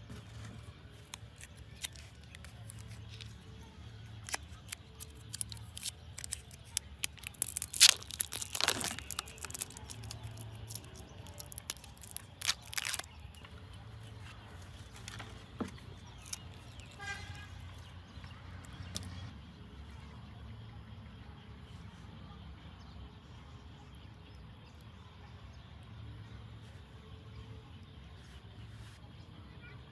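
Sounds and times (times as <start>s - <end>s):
plastic film lid peeling: 0.9s - 3.4s, 4.1s - 13.5s, 14.9s - 17.2s.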